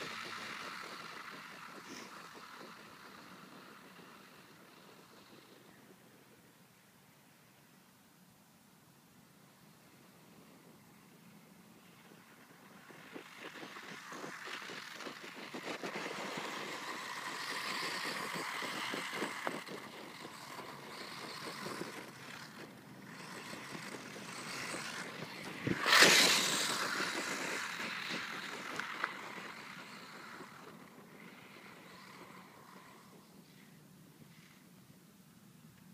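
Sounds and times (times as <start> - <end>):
toy truck electric motor whining: 0.0 - 6.0, 12.2 - 33.7
tyres on muddy dirt: 0.0 - 6.6, 9.7 - 35.0.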